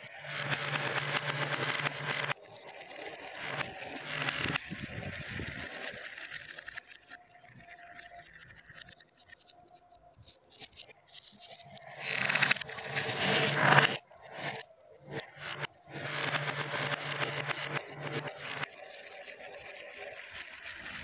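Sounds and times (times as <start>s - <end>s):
hand raking through marbles: 10.6s - 14.0s.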